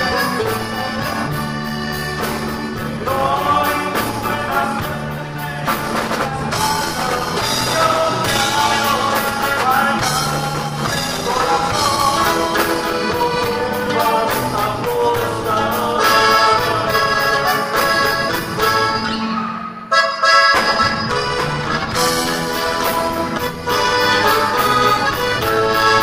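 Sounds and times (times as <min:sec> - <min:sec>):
drum kit: 0:00.0 - 0:19.1, 0:20.5 - 0:26.0
electric bass: 0:00.0 - 0:19.8, 0:20.5 - 0:26.0
accordion melody: 0:00.0 - 0:26.0
bajo sexto strumming: 0:00.0 - 0:26.0.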